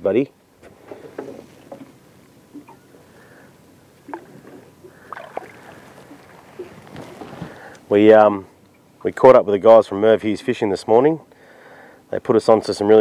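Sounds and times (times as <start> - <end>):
water lapping against boat hull: 4.0 - 7.7.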